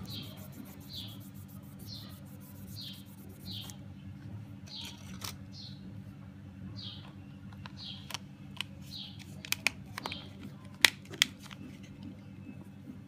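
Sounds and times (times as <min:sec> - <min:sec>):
bird chirping: 0:00.0 - 0:03.8
steady low hum: 0:00.0 - 0:13.0.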